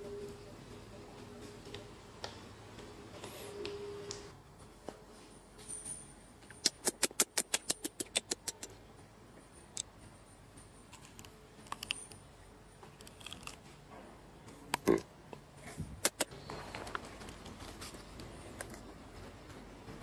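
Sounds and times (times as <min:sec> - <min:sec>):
sharp clicks: 0:06.6 - 0:08.7, 0:16.0 - 0:16.3.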